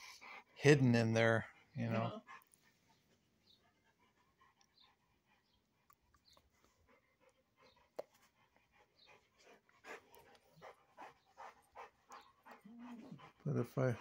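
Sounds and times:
dog panting: 0.0s - 14.0s.

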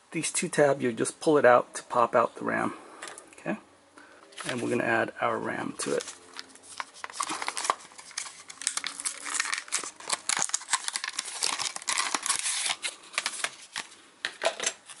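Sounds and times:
plastic packaging crinkling: 5.8s - 15.0s.

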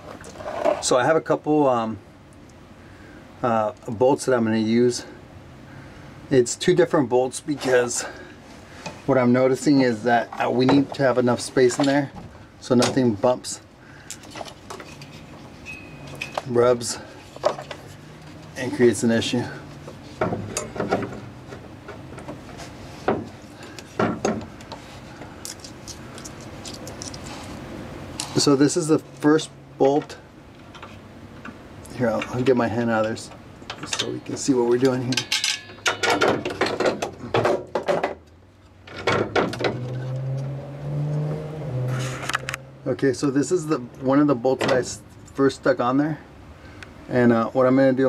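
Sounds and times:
metal clunks and rubs: 14.2s - 18.5s, 19.8s - 25.3s, 38.9s - 40.5s
metal bolt clicks and rattles: 32.1s - 37.2s.

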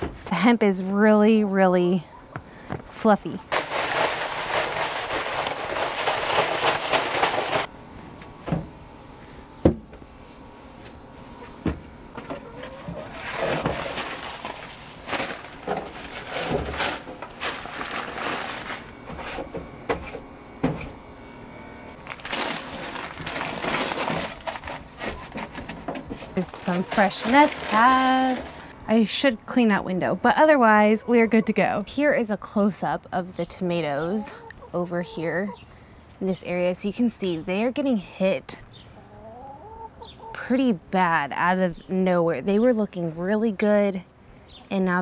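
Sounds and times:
bedding rustling and scraping: 3.5s - 7.7s, 10.2s - 21.0s, 22.0s - 28.8s.

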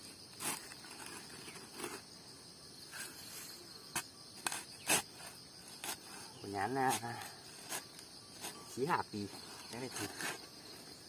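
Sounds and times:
insects chirring: 0.0s - 11.0s
shovel scraping into earth: 0.3s - 2.1s, 2.9s - 8.8s, 9.6s - 10.5s.

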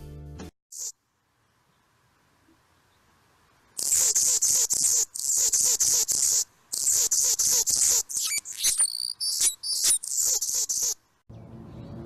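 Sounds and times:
hummingbird buzzing song: 3.8s - 11.0s
thin squeaky bird notes: 6.1s - 11.0s.

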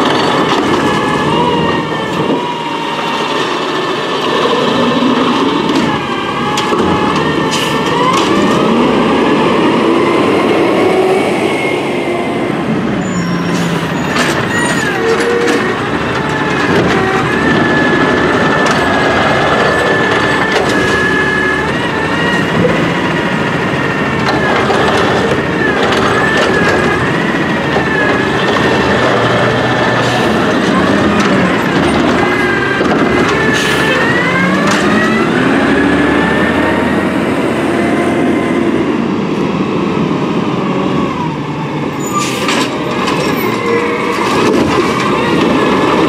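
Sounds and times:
clanks of cart and arm: 0.0s - 2.4s, 3.4s - 8.8s, 13.5s - 35.5s, 42.0s - 46.0s
garbage truck engine whining: 0.0s - 46.0s.

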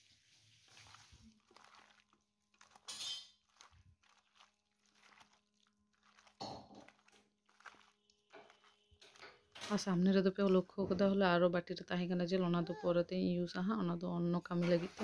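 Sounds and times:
hands squishing wet food: 0.3s - 10.8s.

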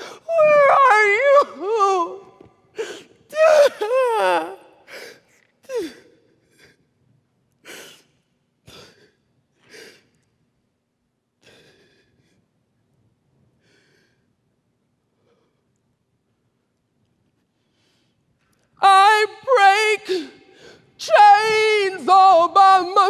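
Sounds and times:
person moaning: 0.0s - 4.8s.

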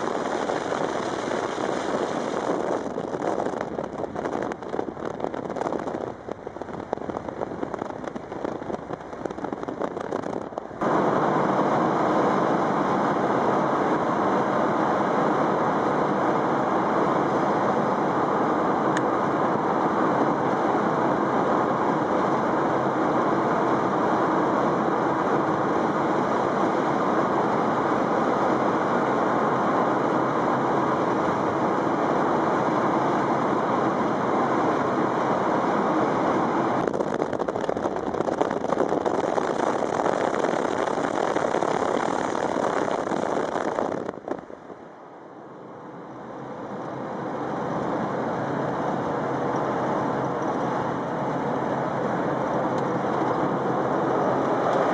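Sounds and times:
car road and wind noise: 0.0s - 54.9s.

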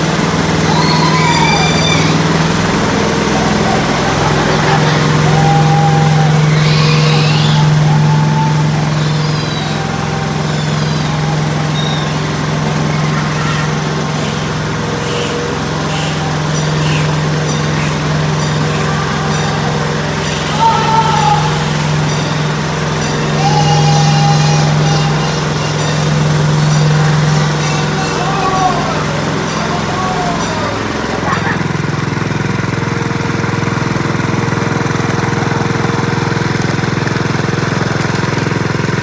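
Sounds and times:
small engine humming: 0.0s - 39.0s
brief high squeals: 0.7s - 2.3s, 5.2s - 14.4s.

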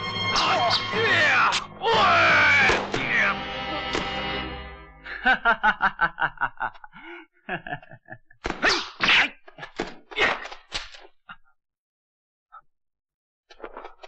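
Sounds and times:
whacking blows: 0.3s - 4.4s
man grunting and gasping: 6.9s - 7.4s.

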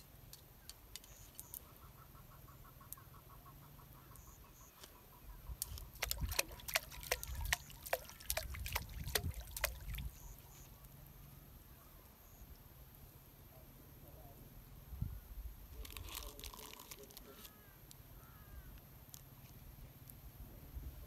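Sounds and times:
fish splashing in water: 5.6s - 10.2s.

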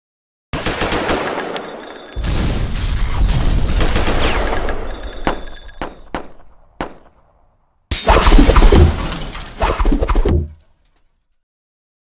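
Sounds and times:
burst of gunfire: 0.6s - 7.1s, 8.0s - 9.1s
dense burst of rapid impacts: 2.2s - 7.0s
shattering and breaking noise: 8.0s - 11.0s.

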